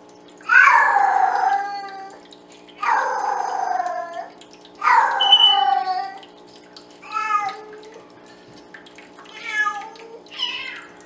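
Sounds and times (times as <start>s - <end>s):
cat meowing loudly: 4.8s - 6.2s, 9.4s - 11.0s.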